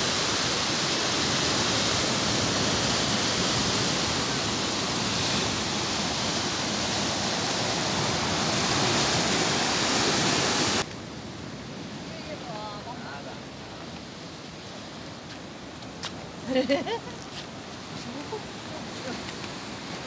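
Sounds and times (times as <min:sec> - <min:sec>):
surf breaking over rocks: 0:00.0 - 0:10.9
wash of waves: 0:00.0 - 0:20.0.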